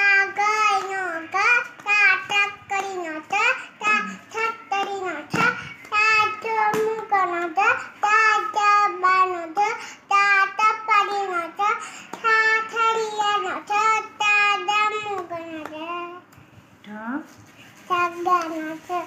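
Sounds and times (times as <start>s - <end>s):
girl singing unaccompanied: 0.0s - 16.4s, 17.7s - 19.0s.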